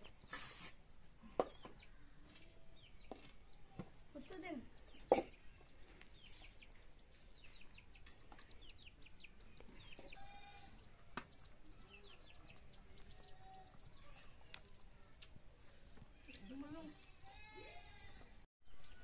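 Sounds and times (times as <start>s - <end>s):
chicks chirping: 0.0s - 0.6s, 1.4s - 17.5s
chickens clucking: 4.8s - 17.0s.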